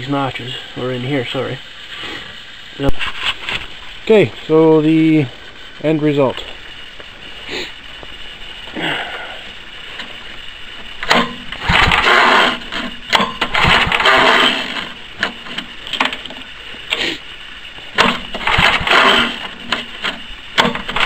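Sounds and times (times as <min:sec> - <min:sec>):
engine cranking with pull cord: 0:09.0 - 0:21.0.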